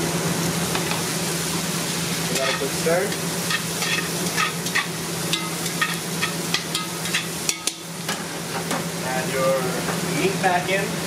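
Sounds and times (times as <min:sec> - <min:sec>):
food sizzling in a pot: 0:00.0 - 0:11.0
metal tongs scraping a pot: 0:02.3 - 0:02.8, 0:03.5 - 0:07.8.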